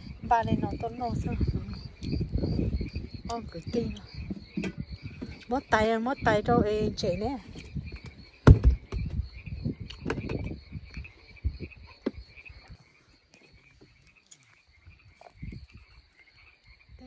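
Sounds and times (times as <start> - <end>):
insects and frogs calling: 0.0 - 17.0
loud thump: 8.4 - 9.2.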